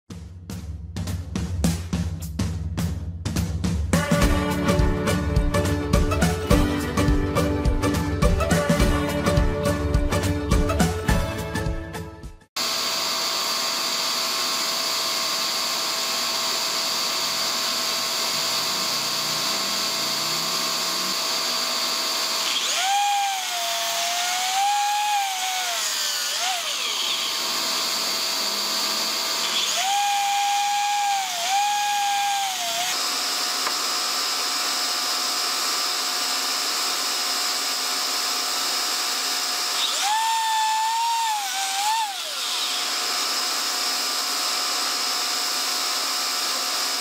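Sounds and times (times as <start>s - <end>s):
dust extractor whine: 12.6s - 47.0s
miter saw cutting wood: 12.6s - 47.0s.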